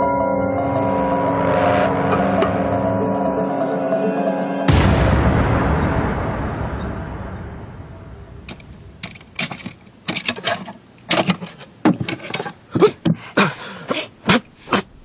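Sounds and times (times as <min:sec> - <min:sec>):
objects rattling in wooden chest: 0:08.5 - 0:13.2.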